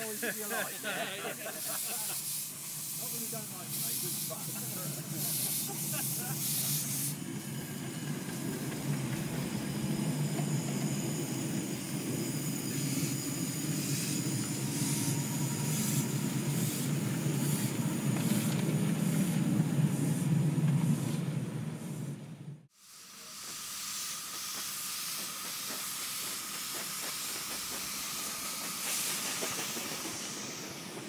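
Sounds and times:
train wheels rumbling on rails: 0:01.3 - 0:31.0
regular rail clicking: 0:23.4 - 0:31.0.

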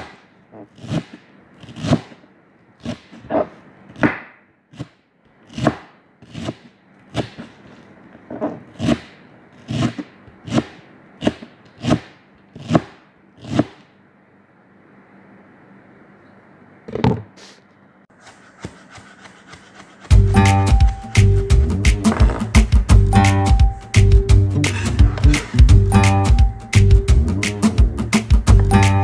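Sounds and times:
knife chopping on plastic board: 0:05.5 - 0:07.5, 0:09.7 - 0:13.8.

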